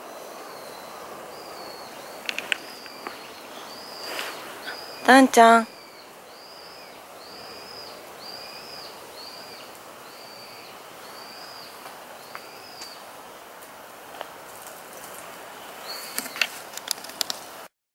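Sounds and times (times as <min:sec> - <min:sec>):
faint outdoor background: 0:00.0 - 0:17.7
animal high arching call: 0:00.7 - 0:13.0.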